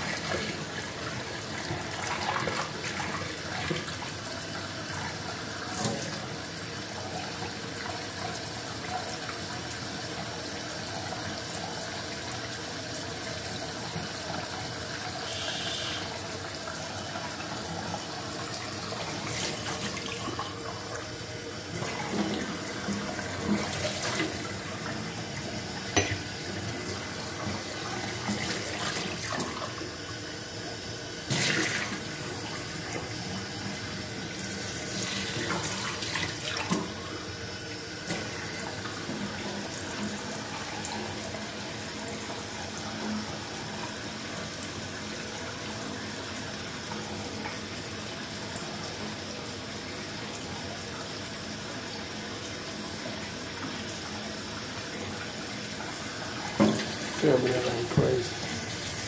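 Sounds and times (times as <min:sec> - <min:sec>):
tap running into a metal sink: 0:25.9 - 0:26.4, 0:56.5 - 0:58.6.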